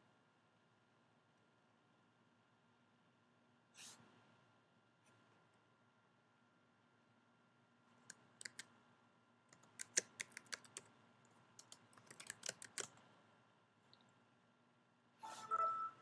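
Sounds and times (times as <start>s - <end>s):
faint typing on a keyboard: 8.0s - 8.8s, 9.5s - 13.2s.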